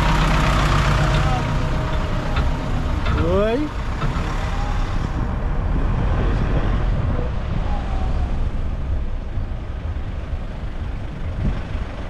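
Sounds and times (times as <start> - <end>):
road and engine rumble: 0.0 - 12.0
wind noise: 4.0 - 12.0.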